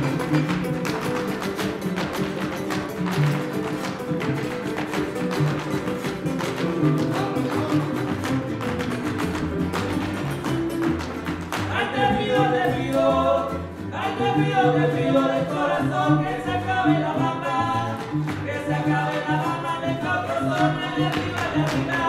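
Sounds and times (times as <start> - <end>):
dance footwork tapping on wood: 0.0 - 11.8
strummed guitars: 0.0 - 22.0
plucked bass line: 5.2 - 22.0.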